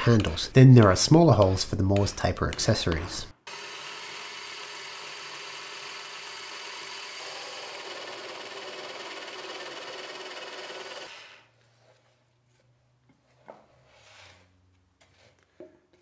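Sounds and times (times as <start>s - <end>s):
drill press boring into wood: 3.5s - 11.5s.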